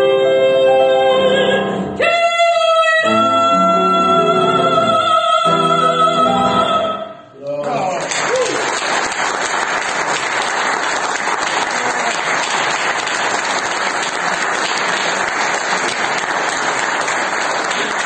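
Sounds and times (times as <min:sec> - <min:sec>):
audience applauding: 0:07.6 - 0:18.0.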